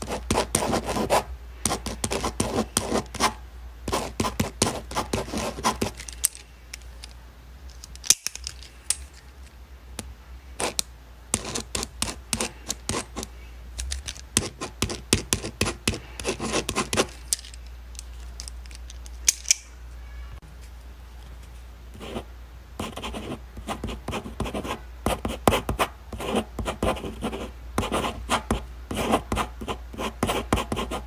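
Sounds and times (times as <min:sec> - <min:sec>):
pen scratching on paper: 0:00.0 - 0:06.0, 0:11.4 - 0:13.3, 0:14.4 - 0:17.1, 0:22.8 - 0:31.0.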